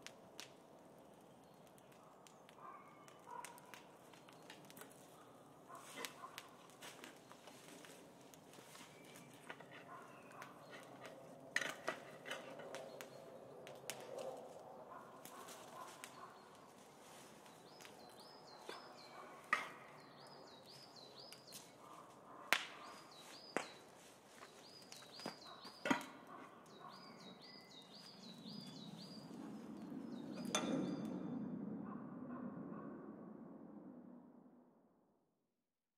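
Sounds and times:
bird chirping: 17.4s - 22.0s, 22.8s - 31.2s
sharp cracks: 22.5s - 23.0s.

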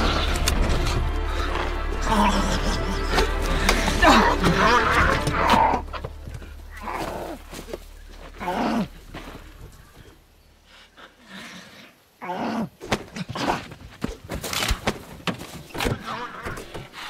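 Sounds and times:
knocks and scuffling thumps: 12.9s - 17.0s.

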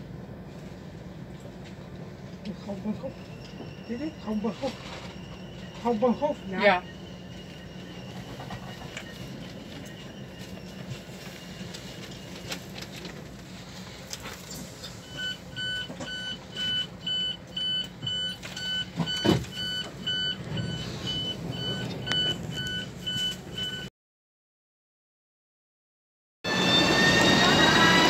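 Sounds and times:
train carriage low hum: 0.0s - 23.9s, 26.5s - 28.0s
train door signal beeping: 2.2s - 23.9s.

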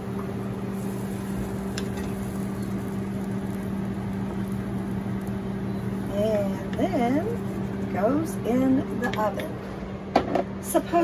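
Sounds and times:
kitchen appliance humming: 0.0s - 11.0s
spatula tapping skillet: 1.7s - 2.8s.

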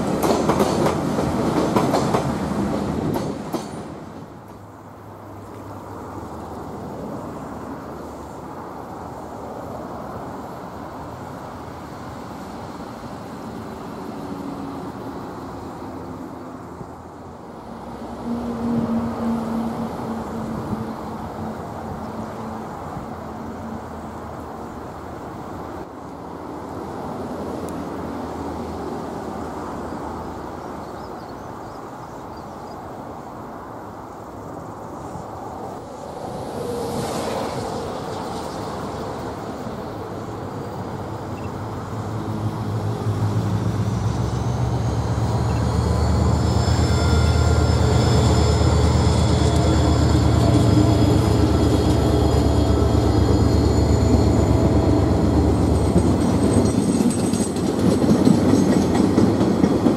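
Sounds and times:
freight train rumbling: 0.0s - 59.9s
diesel engine drone: 41.7s - 56.0s.

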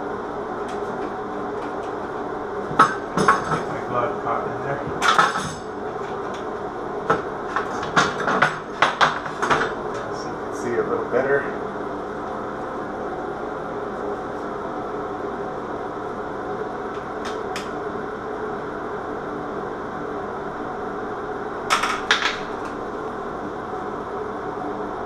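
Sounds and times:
fan-like hum: 0.0s - 25.0s.

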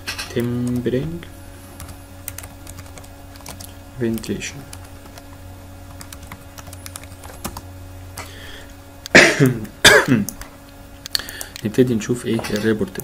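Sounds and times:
low steady hum: 0.0s - 13.0s
person coughing: 9.1s - 10.3s.

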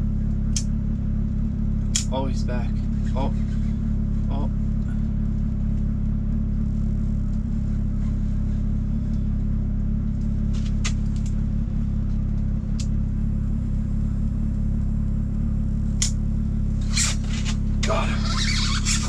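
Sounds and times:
low mechanical hum: 0.0s - 19.0s
light sharp clicks: 0.4s - 0.8s, 1.9s - 2.2s, 12.2s - 13.0s, 15.9s - 16.2s.

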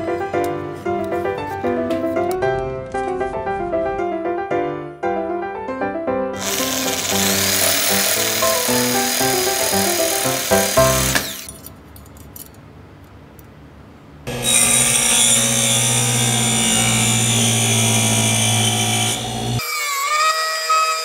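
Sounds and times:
table saw running: 6.4s - 11.5s, 14.3s - 20.2s
saw blade cutting plastic sheet: 6.4s - 11.6s, 14.3s - 21.0s.

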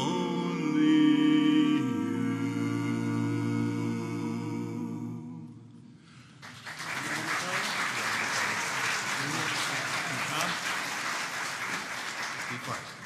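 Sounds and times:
men's vocal quartet singing: 0.0s - 5.9s
audience applause: 6.4s - 13.0s.

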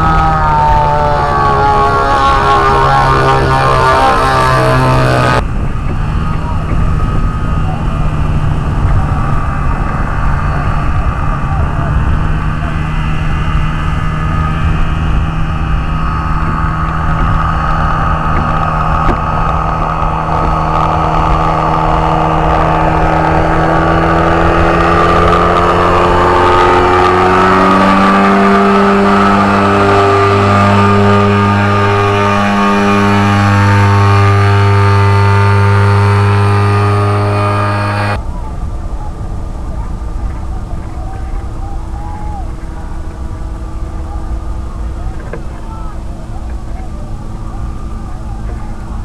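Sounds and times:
two-stroke engine flying past: 0.0s - 38.2s.

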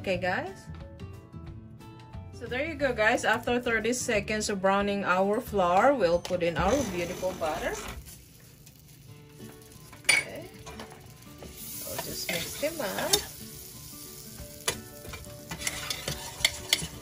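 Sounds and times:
butter sizzling in a hot pan: 6.8s - 17.0s.

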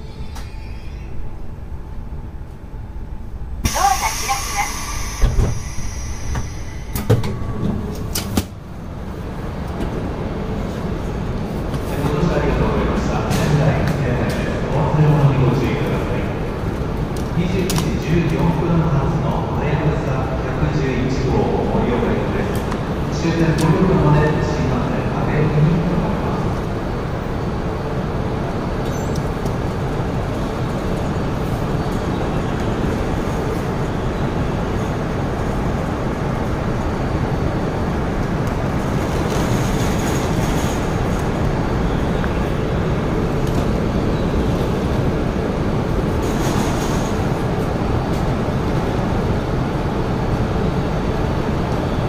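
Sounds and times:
steady hum: 0.0s - 9.6s
low rumble of stopped train: 0.0s - 52.0s.

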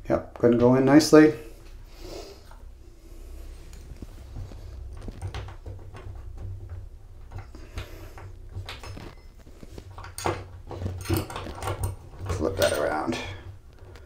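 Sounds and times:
metal plate and screws handled: 8.5s - 13.5s.

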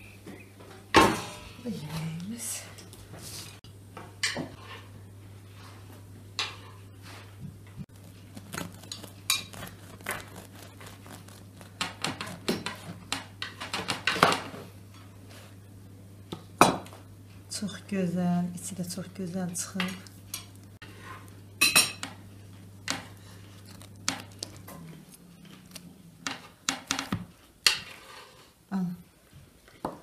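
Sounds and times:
knife sawing through crusty bread: 8.0s - 12.8s.

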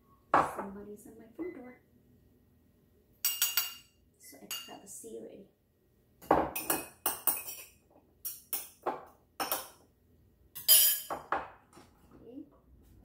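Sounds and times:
spoon and dishes clinking: 3.2s - 4.8s, 6.4s - 9.8s, 10.6s - 11.5s.

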